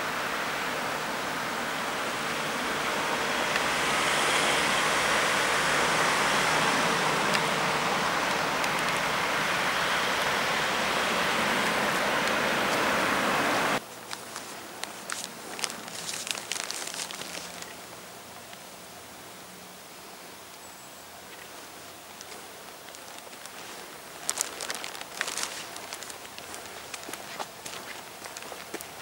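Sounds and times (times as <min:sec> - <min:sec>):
steady rushing noise: 0:00.0 - 0:18.1.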